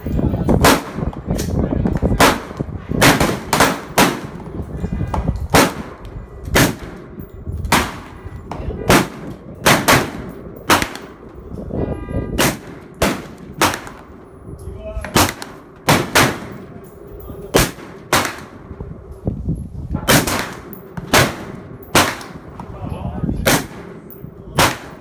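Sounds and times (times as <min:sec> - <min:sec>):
rifle shots with echo: 0:00.6 - 0:01.1, 0:02.2 - 0:04.4, 0:05.5 - 0:08.1, 0:08.8 - 0:11.2, 0:12.4 - 0:14.2, 0:15.1 - 0:16.7, 0:17.5 - 0:18.7, 0:20.0 - 0:22.5, 0:23.4 - 0:25.0.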